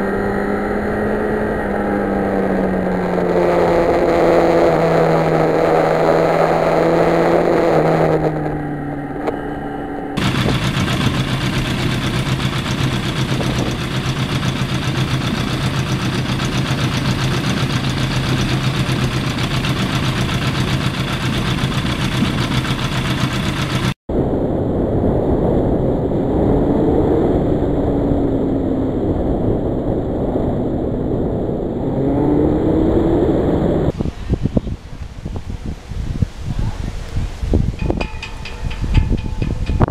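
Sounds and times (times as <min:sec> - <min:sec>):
motorcycle engine: 0:00.0 - 0:24.0
wind noise: 0:00.0 - 0:39.9.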